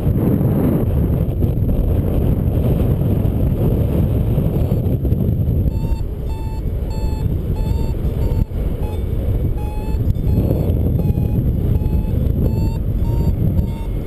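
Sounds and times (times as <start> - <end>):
wind buffeting microphone: 0.0 - 14.0
variometer beeping in short tones: 5.6 - 14.0.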